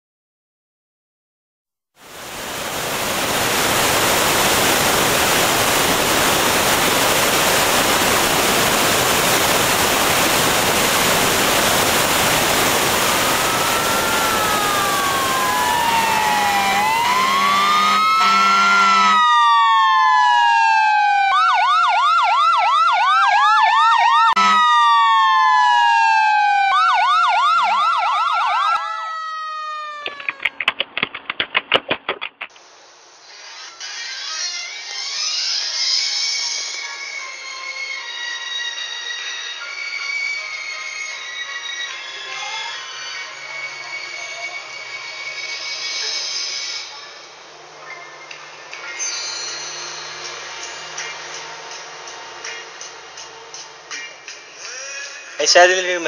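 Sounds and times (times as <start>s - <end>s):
loud rushing noise: 2.0s - 17.8s
emergency sirens wailing: 2.2s - 30.7s.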